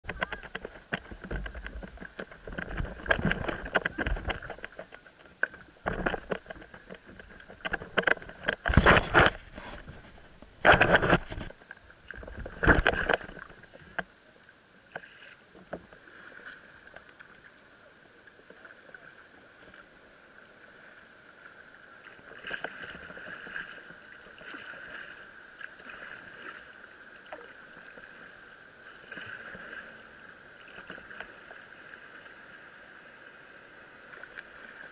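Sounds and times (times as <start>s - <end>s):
water lapping and dripping: 0.1s - 34.9s
paddle strokes splashing: 14.8s - 34.9s.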